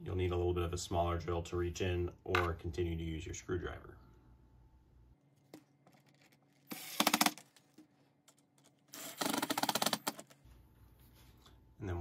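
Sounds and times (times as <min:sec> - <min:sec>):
cordless drill driving screws: 0:06.7 - 0:07.4, 0:08.9 - 0:10.2.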